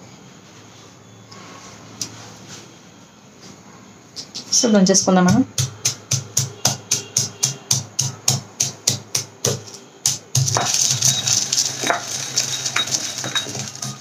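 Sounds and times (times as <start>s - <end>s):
pestle pounding in stone mortar: 5.2s - 14.0s.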